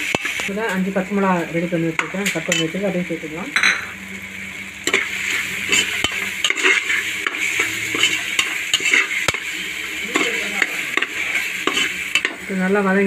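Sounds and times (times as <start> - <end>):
food sizzling in oil: 0.0 - 13.0
spoon stirring and scraping: 4.9 - 12.4.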